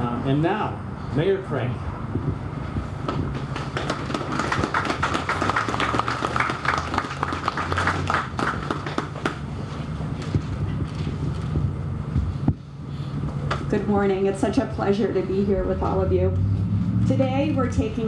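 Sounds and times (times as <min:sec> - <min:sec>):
audience applauding: 0:03.5 - 0:09.4.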